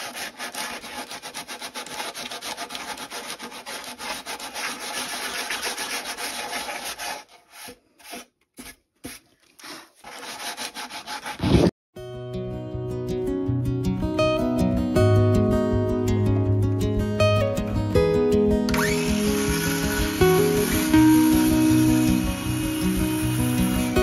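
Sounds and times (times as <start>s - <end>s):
sandpaper rubbing on wood: 0.0s - 11.7s, 19.4s - 24.0s.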